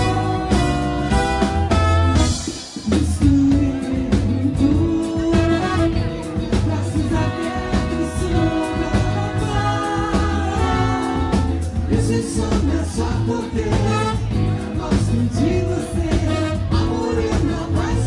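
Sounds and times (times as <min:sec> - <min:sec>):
horn section: 0:00.0 - 0:02.7, 0:05.3 - 0:06.4, 0:07.0 - 0:11.9, 0:13.8 - 0:14.7, 0:16.1 - 0:17.2
person singing: 0:00.0 - 0:18.0
samba band playing: 0:00.0 - 0:18.0.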